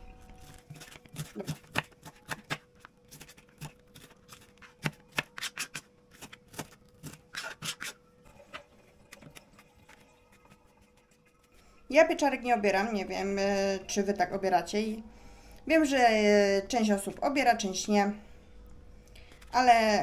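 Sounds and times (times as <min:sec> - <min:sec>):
knife chopping on cutting board: 0:00.7 - 0:02.6, 0:03.2 - 0:07.9.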